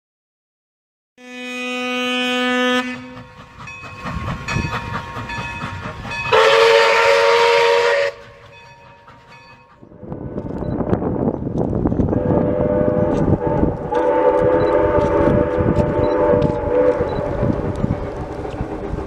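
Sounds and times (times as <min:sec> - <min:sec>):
steam whistle blast: 0:01.2 - 0:03.3, 0:06.3 - 0:08.3, 0:12.2 - 0:17.4
steam locomotive exhaust chuffs: 0:01.8 - 0:19.0
steady rushing noise: 0:09.9 - 0:19.0.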